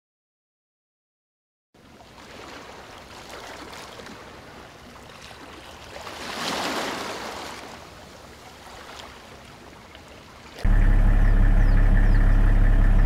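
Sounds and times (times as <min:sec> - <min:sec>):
water lapping and sloshing: 0:01.8 - 0:10.7.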